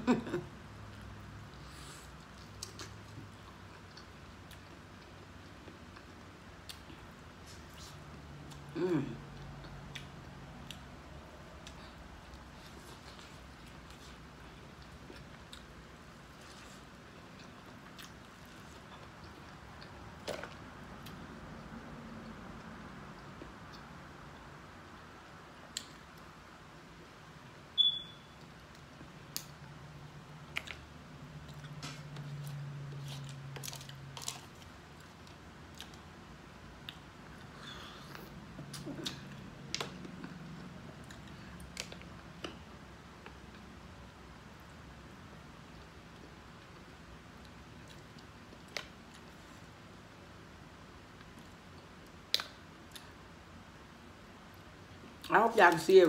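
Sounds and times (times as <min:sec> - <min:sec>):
low steady hum: 0:00.0 - 0:56.0
chewing corn on the cob: 0:02.1 - 0:25.1, 0:30.3 - 0:36.2.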